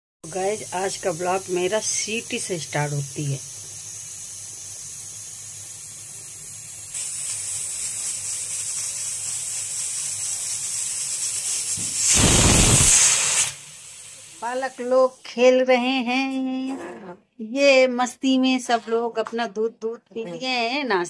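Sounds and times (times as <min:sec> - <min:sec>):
pressure cooker hissing steam: 0:00.2 - 0:15.9
pressure cooker whistle: 0:07.0 - 0:14.9.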